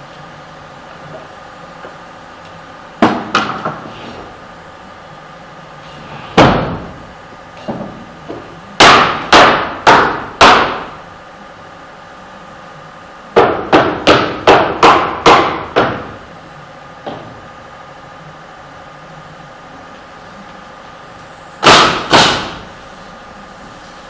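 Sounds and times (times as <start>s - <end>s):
hammering nails into wood: 8.8s - 11.0s, 13.4s - 16.2s, 21.6s - 22.6s.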